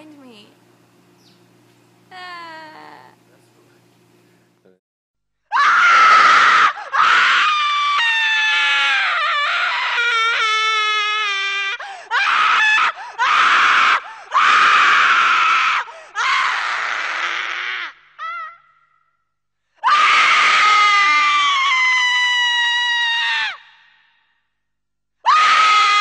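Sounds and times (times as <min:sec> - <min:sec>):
person screaming: 0:05.5 - 0:18.7.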